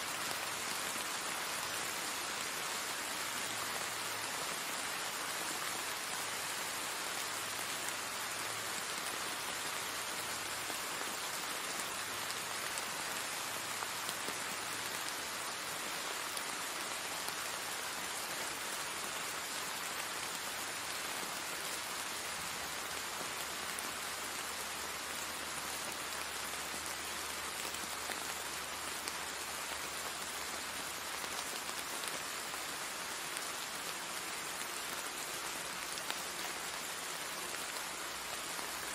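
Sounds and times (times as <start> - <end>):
rain on paving stones: 0.0 - 38.9.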